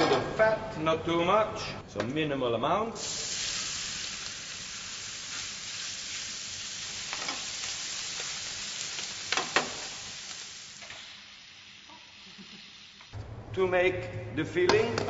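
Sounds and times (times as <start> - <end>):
bacon sizzling in a pan: 3.0 - 13.1.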